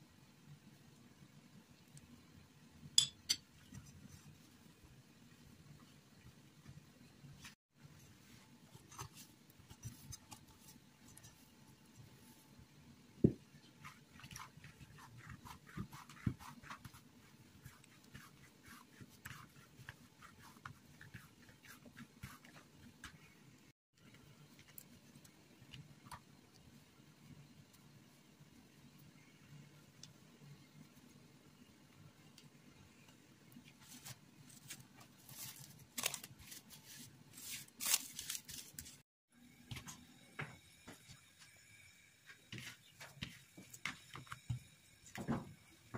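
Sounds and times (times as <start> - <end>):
hands kneading bread dough: 13.2 - 28.2
plastic cling film crinkling: 33.8 - 39.0.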